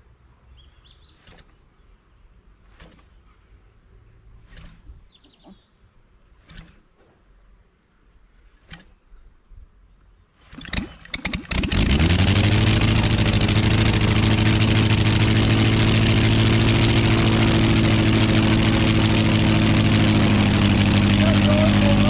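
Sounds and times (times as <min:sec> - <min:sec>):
aero engine running: 0:10.6 - 0:22.0.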